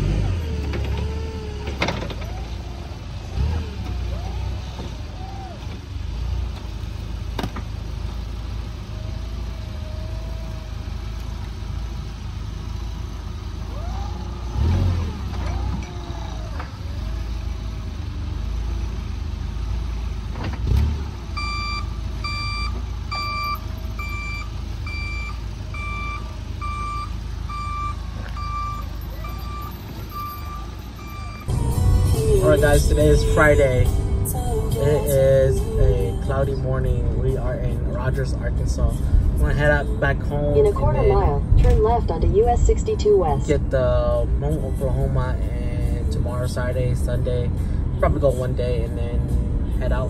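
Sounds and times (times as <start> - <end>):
forklift engine running: 0.0 - 44.7
reversing alarm beeping: 21.4 - 32.0.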